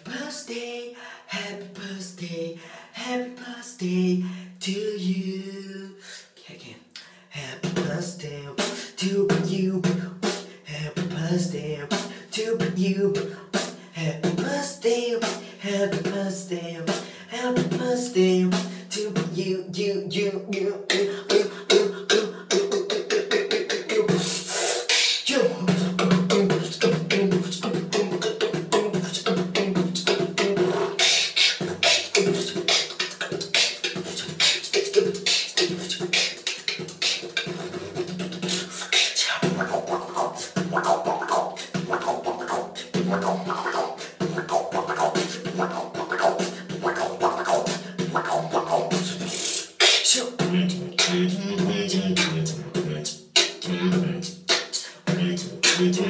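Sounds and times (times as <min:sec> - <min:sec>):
beatboxing percussion: 0:00.0 - 0:00.6, 0:07.0 - 0:56.0
low held vocal note: 0:50.4 - 0:54.3.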